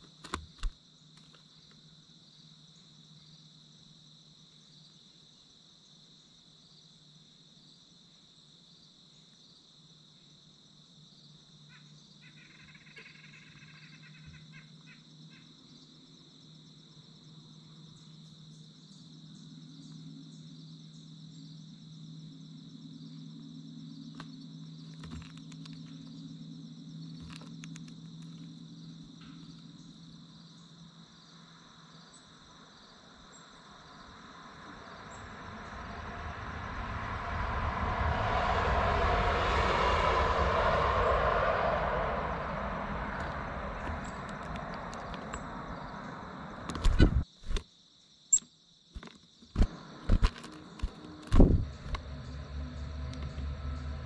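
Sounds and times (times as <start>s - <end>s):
high insect trilling: 32.8s - 37.1s
low hum: 33.4s - 47.2s, 49.6s - 54.0s.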